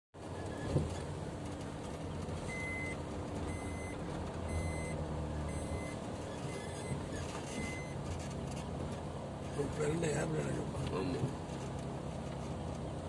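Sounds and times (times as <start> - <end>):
car engine and road rumble: 0.2 - 13.0
electronic warning beeper: 2.5 - 7.0.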